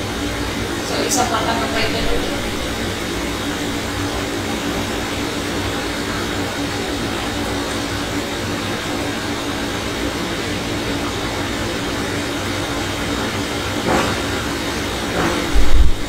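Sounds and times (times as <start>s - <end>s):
low hum: 0.8s - 5.3s.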